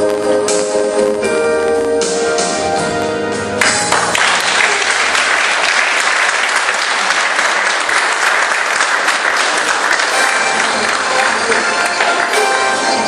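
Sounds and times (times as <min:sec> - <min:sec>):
audience applause: 0:03.6 - 0:13.0.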